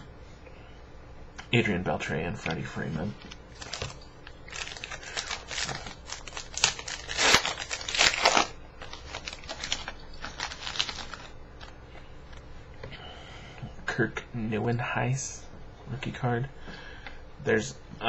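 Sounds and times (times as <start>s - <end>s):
foil wrapper tearing and crinkling: 3.5s - 11.7s.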